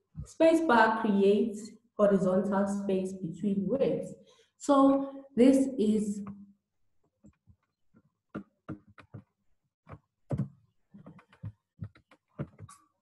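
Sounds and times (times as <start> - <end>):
keyboard and mouse clicking: 9.9 - 12.8.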